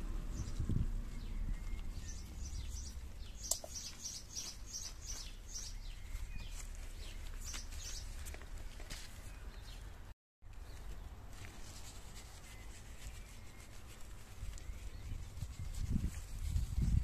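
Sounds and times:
low steady rumble: 0:00.0 - 0:03.4
small birds chirping: 0:00.0 - 0:17.0
sharp click: 0:03.4 - 0:03.8.

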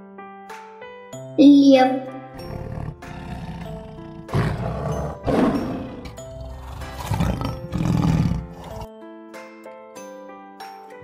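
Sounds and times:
light background music: 0:00.0 - 0:11.0
lion roaring: 0:02.4 - 0:08.9.

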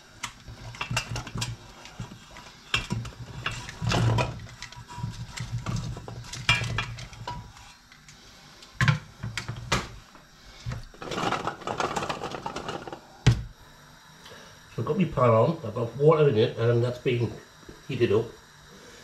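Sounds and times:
colander and pot clattering: 0:00.0 - 0:07.7, 0:10.7 - 0:13.0
potatoes tumbling into a pot: 0:00.2 - 0:07.6, 0:10.6 - 0:13.5.

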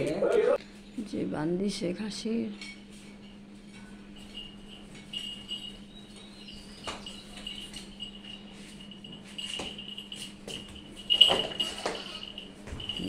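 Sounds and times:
goat bell tinkling: 0:03.2 - 0:13.0
hooves on tiled stairs: 0:04.2 - 0:13.0.

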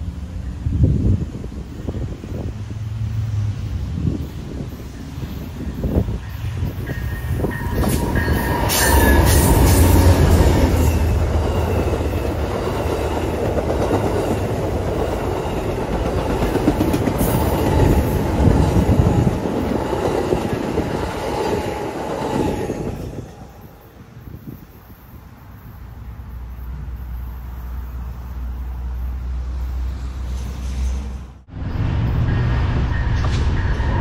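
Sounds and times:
train wheels rumbling on rails: 0:00.0 - 0:34.0
rail clicks: 0:04.5 - 0:23.5.

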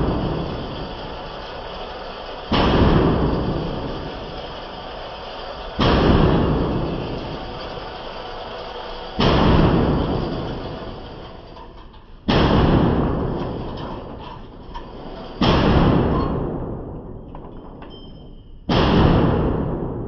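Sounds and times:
rifle gunshots echoing indoors: 0:02.5 - 0:03.6, 0:05.8 - 0:06.8, 0:12.3 - 0:13.4, 0:15.4 - 0:17.2, 0:18.7 - 0:20.0.

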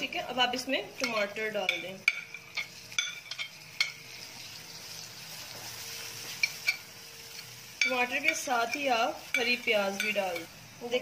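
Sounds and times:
tomatoes sizzling in hot oil: 0:00.0 - 0:11.0.

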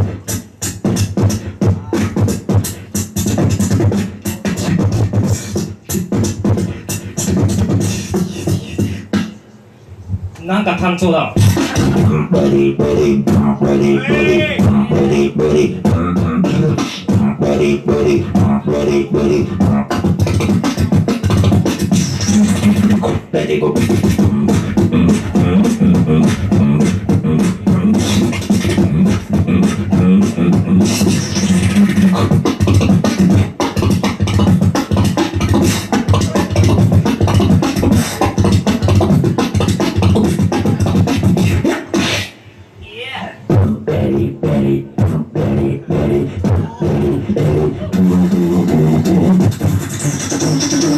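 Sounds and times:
beatboxing: 0:00.0 - 0:42.8, 0:43.4 - 0:50.9
low bass hum: 0:11.4 - 0:20.6, 0:21.4 - 0:33.5.

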